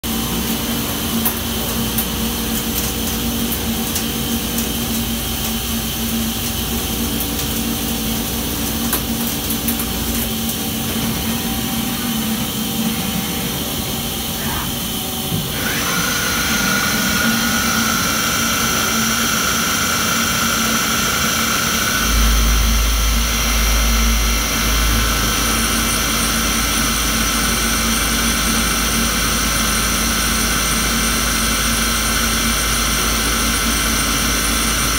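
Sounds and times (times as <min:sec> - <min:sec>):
high steady whine: 0:00.1 - 0:34.9
lathe cutting metal: 0:07.6 - 0:34.9
constant hum: 0:20.5 - 0:33.6
deep rumble: 0:21.7 - 0:28.8.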